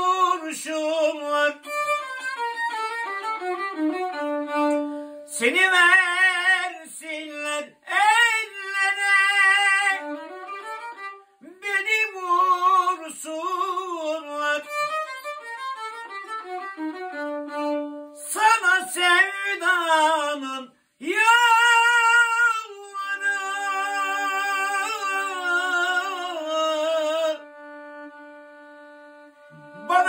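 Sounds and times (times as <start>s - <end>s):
man singing sustained notes: 0.0s - 2.1s, 5.3s - 10.7s, 11.4s - 15.0s, 18.2s - 28.1s, 29.4s - 30.0s
violin melody: 0.0s - 6.8s, 7.4s - 20.3s, 21.9s - 30.0s.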